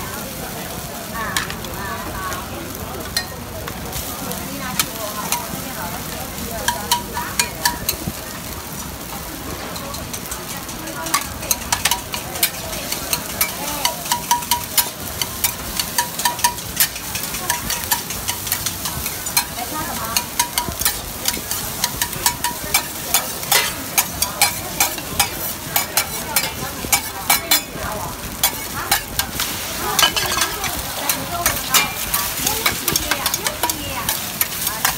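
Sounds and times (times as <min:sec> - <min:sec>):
griddle sizzling: 0:00.0 - 0:34.9
metal spatulas clacking on griddle: 0:03.0 - 0:03.4, 0:06.6 - 0:08.1, 0:09.6 - 0:34.9.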